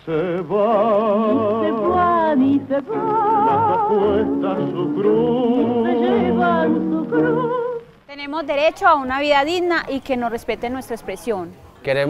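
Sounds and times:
singer with strong vibrato: 0.0s - 7.9s.

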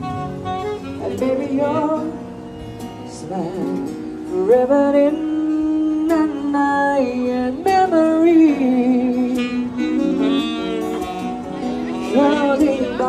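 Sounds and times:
acoustic guitar: 0.0s - 13.0s
person singing: 1.0s - 2.2s, 3.0s - 11.0s, 11.8s - 13.0s.

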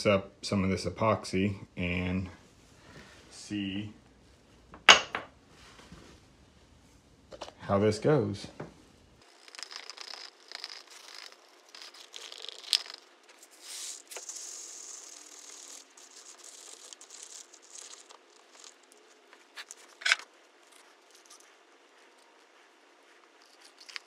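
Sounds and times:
plastic cup crinkling: 9.2s - 20.3s.

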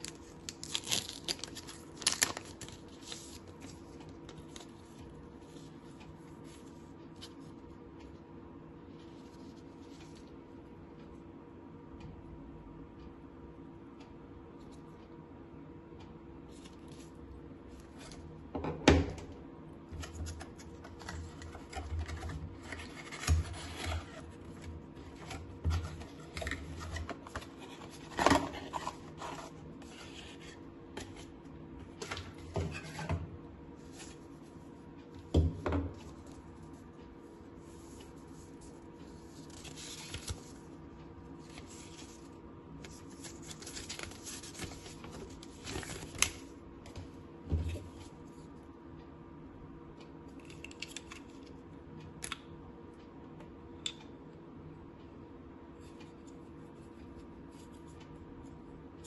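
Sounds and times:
plastic and paper rustling: 0.0s - 5.7s, 41.4s - 47.0s
faint steady hum: 0.0s - 59.0s.

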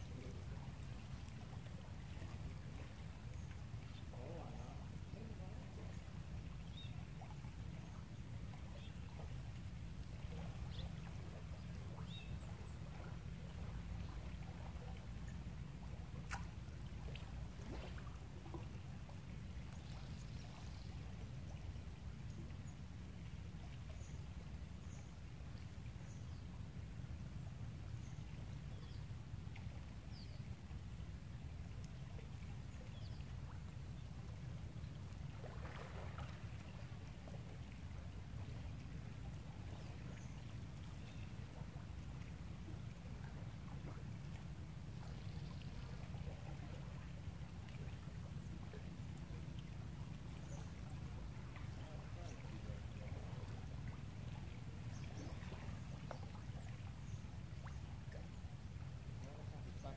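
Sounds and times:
faint bird chirps: 5.5s - 8.1s, 10.3s - 13.0s.

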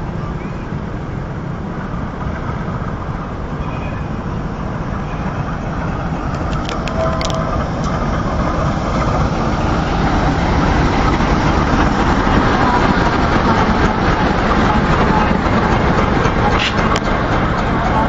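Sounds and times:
train rumbling past: 0.0s - 18.0s
sharp clicks: 6.3s - 8.0s.

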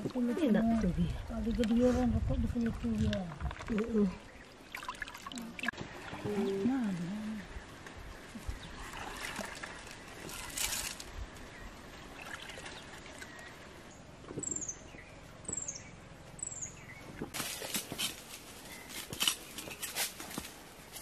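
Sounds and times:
dry leaves crackling: 9.6s - 11.2s, 17.4s - 21.0s.

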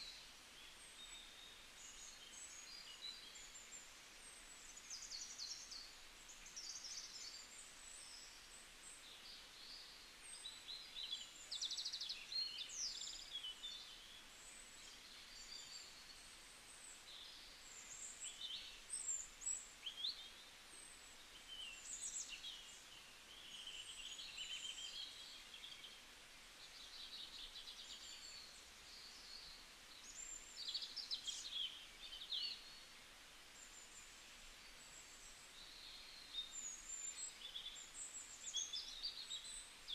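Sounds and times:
low steady hiss: 0.0s - 39.9s
small birds chirping and twittering: 0.0s - 39.9s.

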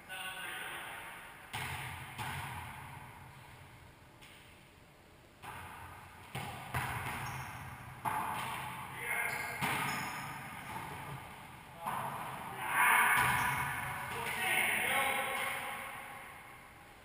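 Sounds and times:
ball hits ringing in court: 5.4s - 11.2s, 13.0s - 14.4s
players' voices: 10.7s - 16.1s.

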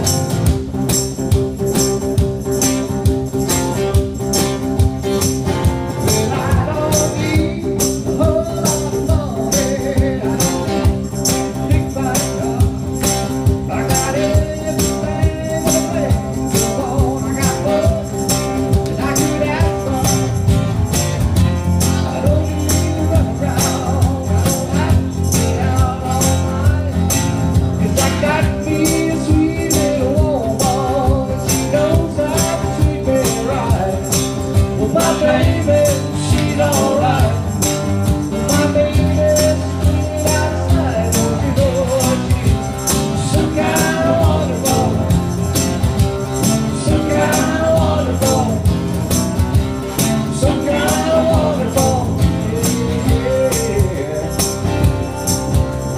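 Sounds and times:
electric bass: 0.0s - 55.9s
keyboard: 0.0s - 55.9s
tambourine shaken: 0.0s - 55.9s
person singing: 21.9s - 37.6s, 38.4s - 45.2s, 46.8s - 48.7s, 50.2s - 54.8s.

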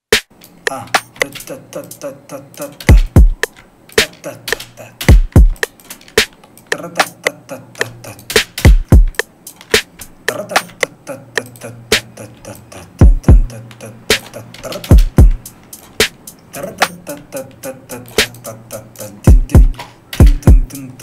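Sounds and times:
sharp snare hits: 0.1s - 0.3s, 2.9s - 6.4s, 8.3s - 10.0s, 16.0s - 16.2s
rapid hi-hat ticks: 0.1s - 21.0s.

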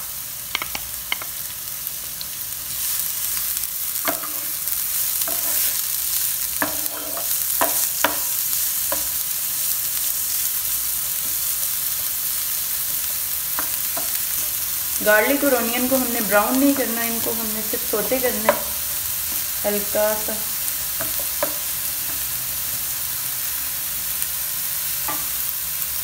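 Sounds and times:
onions sizzling in oil: 0.0s - 26.0s
wooden spoon knocking pan: 18.4s - 18.8s.

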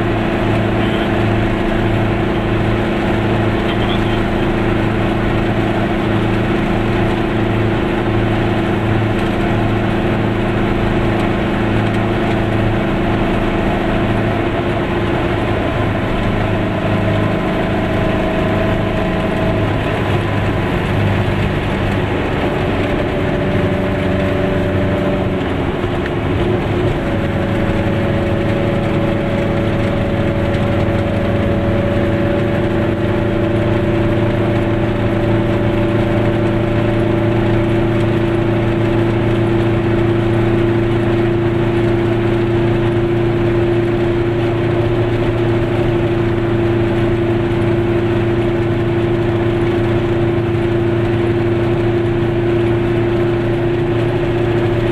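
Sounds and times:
road noise: 0.0s - 54.9s
small two-stroke engine running: 0.0s - 54.9s.

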